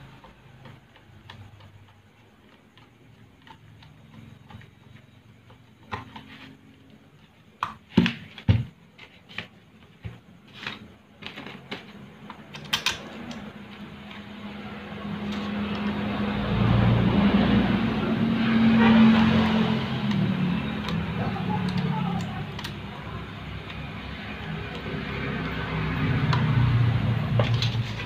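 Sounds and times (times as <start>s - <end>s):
electric fan motor humming: 11.6s - 28.0s
screwdriver and metal parts clicking: 12.2s - 13.6s.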